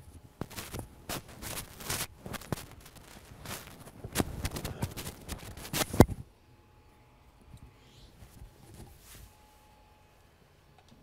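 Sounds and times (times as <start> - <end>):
clothing fabric rustling: 0.4 - 6.2, 8.2 - 9.5.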